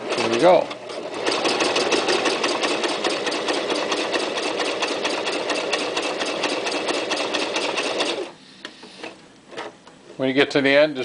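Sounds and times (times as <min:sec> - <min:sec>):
sewing machine running: 0:00.0 - 0:08.4.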